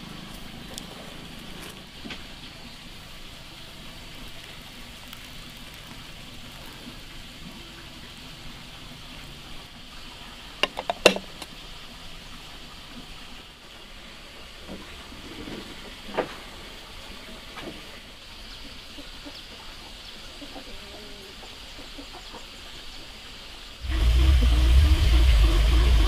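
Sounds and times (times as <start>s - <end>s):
water pouring into a bowl: 3.5s - 8.1s
ceramic lid clinking on bowl: 10.6s - 11.5s.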